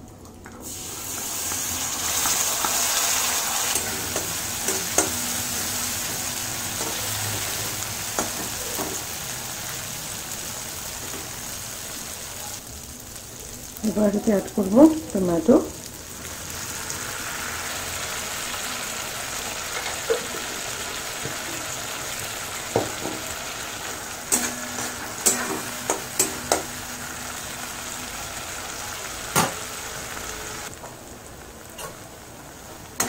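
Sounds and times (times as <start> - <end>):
paste sizzling in oil: 0.6 - 33.0
metal spatula scraping pan: 24.3 - 26.8.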